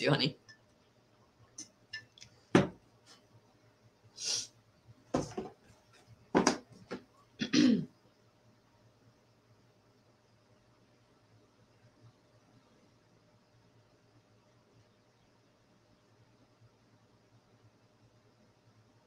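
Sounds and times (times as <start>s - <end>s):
objects handled on a desk: 2.0s - 3.2s, 5.1s - 7.2s
tumbler set down on desk: 2.5s - 2.8s, 5.1s - 5.6s, 6.3s - 7.0s
short breathy hiss: 4.1s - 4.6s.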